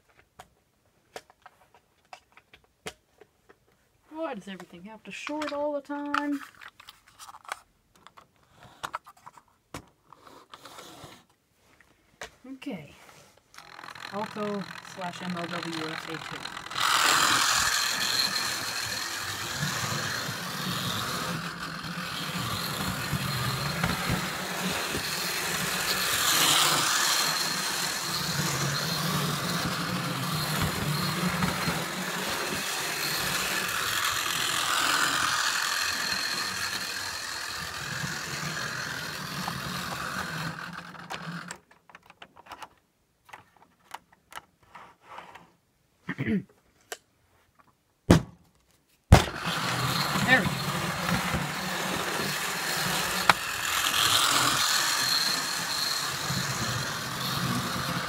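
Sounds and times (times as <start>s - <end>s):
model cars clicking and tapping: 4.6s - 9.9s, 13.5s - 44.5s, 49.8s - 58.0s
model train motor whirring: 13.5s - 41.7s, 49.2s - 58.0s
wheels running on track: 13.6s - 41.6s, 49.3s - 58.0s.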